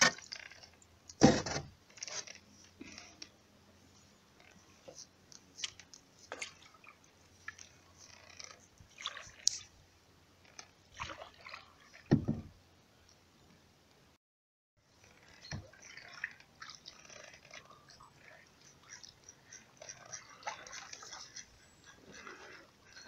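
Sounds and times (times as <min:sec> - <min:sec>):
paddle drips and splashes: 0:05.3 - 0:09.8, 0:10.4 - 0:12.4, 0:15.0 - 0:23.0.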